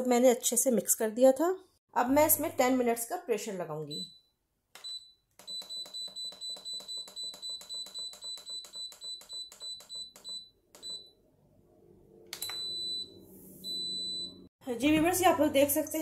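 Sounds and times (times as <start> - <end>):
longer beep: 12.4 - 14.5.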